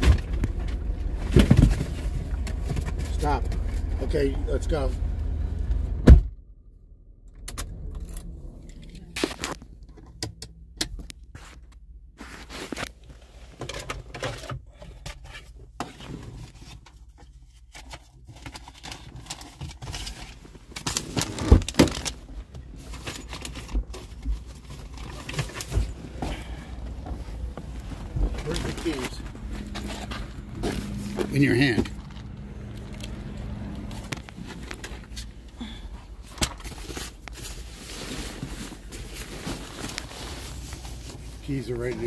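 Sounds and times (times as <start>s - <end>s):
objects handled in car cabin: 0.0s - 6.5s, 7.2s - 42.0s
faint low rumble: 0.0s - 12.3s.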